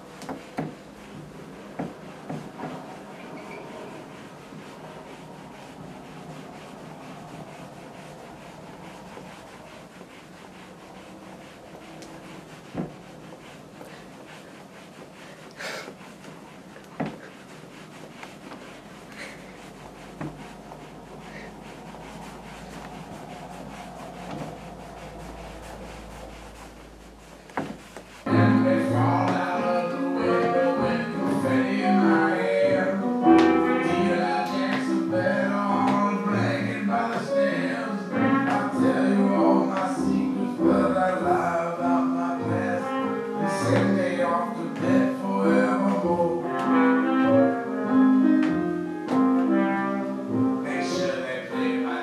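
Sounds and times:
bare feet creaking wooden floor: 0.0 - 28.3.

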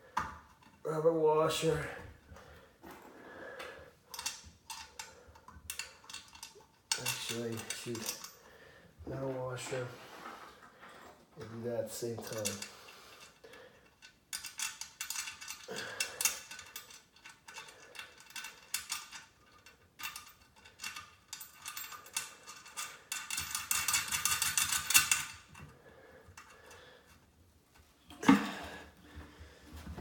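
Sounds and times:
metal washers and nuts clinking: 4.1 - 8.4, 11.4 - 25.7.

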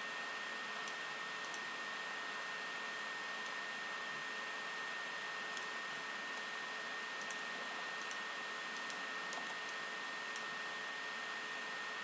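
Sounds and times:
computer mouse clicking: 0.8 - 1.6, 5.5 - 5.8, 7.2 - 10.5.

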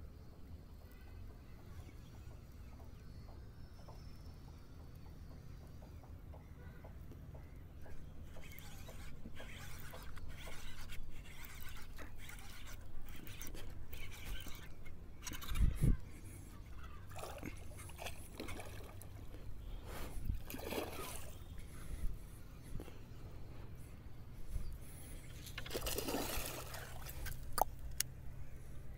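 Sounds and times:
water splashing and sloshing: 8.2 - 15.7, 16.4 - 21.8, 25.3 - 28.1.

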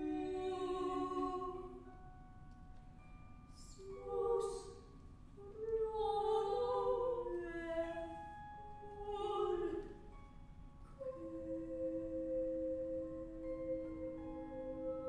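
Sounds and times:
women singing wordless held notes: 0.0 - 1.9, 3.6 - 8.2, 8.8 - 10.1, 11.0 - 15.0.

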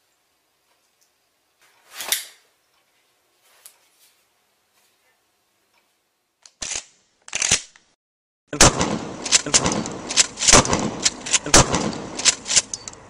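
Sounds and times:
continuous noisy bed: 8.5 - 13.0
gunfire: 8.6 - 12.8.

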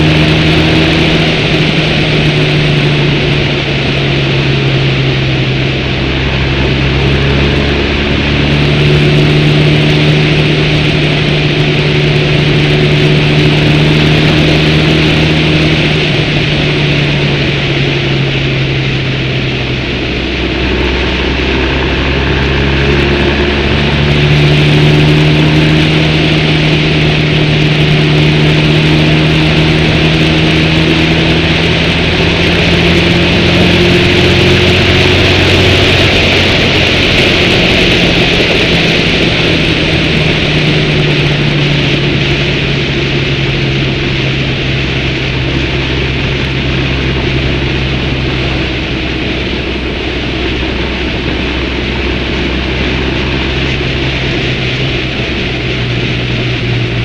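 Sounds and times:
motorcycle engine running: 0.0 - 57.0
road noise: 0.0 - 57.0
wind rushing: 0.0 - 57.0.

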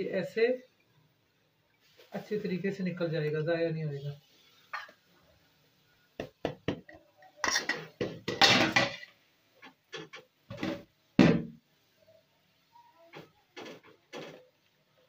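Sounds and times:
spatula scraping metal strainer: 7.4 - 9.1.

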